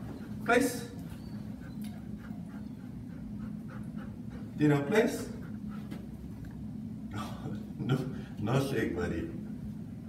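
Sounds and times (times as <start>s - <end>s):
dog panting softly: 0.0s - 6.4s.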